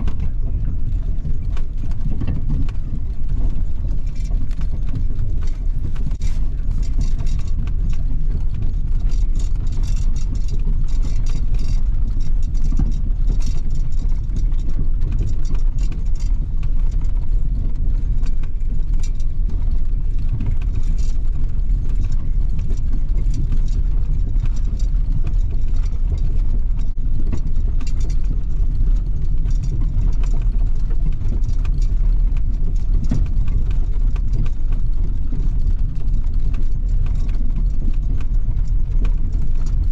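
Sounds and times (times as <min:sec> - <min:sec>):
light clicks and rattles: 0:00.0 - 0:39.9
truck engine and road rumble: 0:00.0 - 0:39.9.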